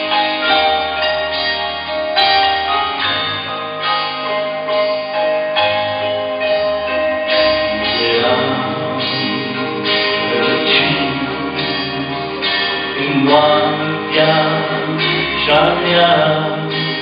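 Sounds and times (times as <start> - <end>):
sustained instrumental chords: 0.0 - 17.0.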